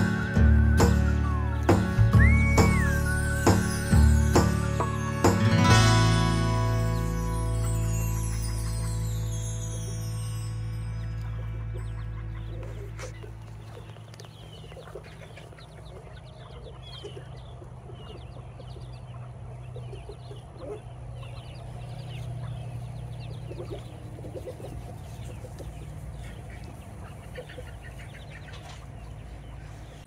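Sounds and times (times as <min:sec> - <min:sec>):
ducklings peeping: 0:00.0 - 0:05.2, 0:06.5 - 0:09.6, 0:10.9 - 0:30.0
adult ducks calling: 0:11.2 - 0:30.0.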